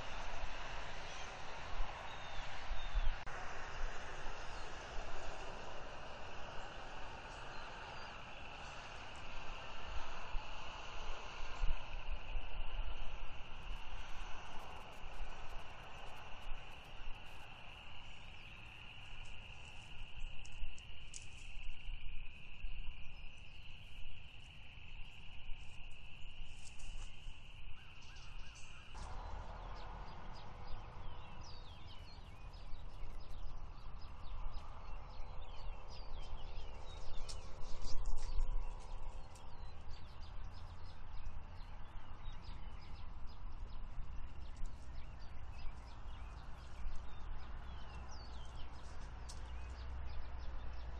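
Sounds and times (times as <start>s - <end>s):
low rumble: 29.0s - 35.7s.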